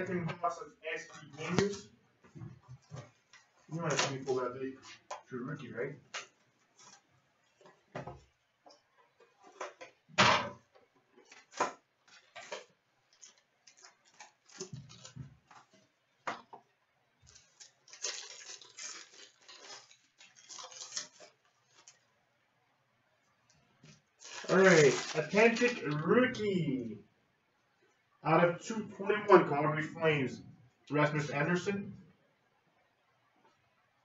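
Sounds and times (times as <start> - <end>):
plastic wrapping crinkling: 11.2 - 15.9, 17.2 - 22.2, 23.8 - 25.9.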